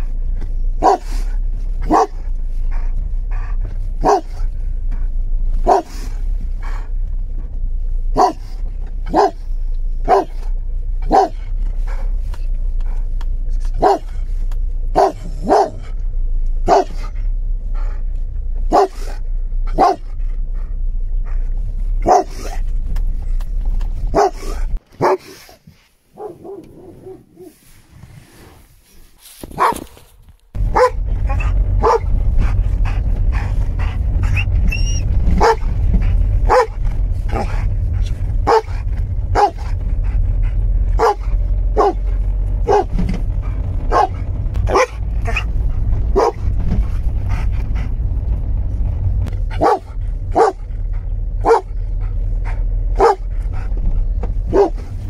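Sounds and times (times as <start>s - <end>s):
steady low rumble: 0.0s - 24.9s, 26.1s - 55.0s
dog barking: 0.8s - 1.2s, 1.8s - 2.3s, 4.0s - 4.5s, 5.6s - 6.0s, 8.1s - 11.5s, 13.8s - 14.2s, 14.9s - 15.9s, 16.6s - 17.1s, 18.7s - 20.2s, 22.0s - 22.6s, 24.1s - 25.4s, 26.1s - 27.6s, 29.6s - 29.9s, 30.7s - 32.1s, 34.8s - 35.7s, 36.4s - 37.6s, 38.4s - 39.8s, 41.0s - 43.0s, 43.9s - 45.5s, 46.1s - 46.5s, 49.5s - 50.7s, 51.4s - 51.8s, 52.9s - 53.3s, 54.5s - 54.9s.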